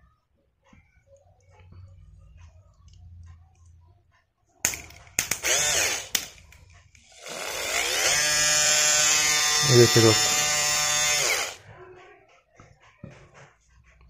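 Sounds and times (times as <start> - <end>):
compressor motor whirring: 5.3 - 11.6.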